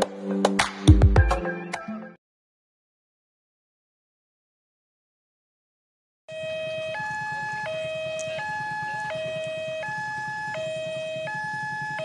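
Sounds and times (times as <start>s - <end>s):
two-tone electronic warning siren: 6.3s - 12.0s.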